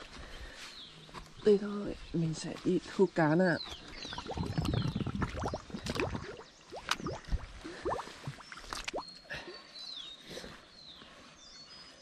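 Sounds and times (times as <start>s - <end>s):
water dripping and splashing: 3.7s - 9.3s.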